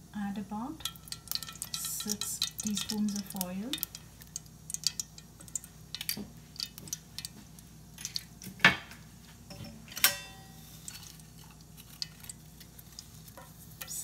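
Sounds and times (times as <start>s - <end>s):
dishes and utensils clattering: 9.5s - 11.2s.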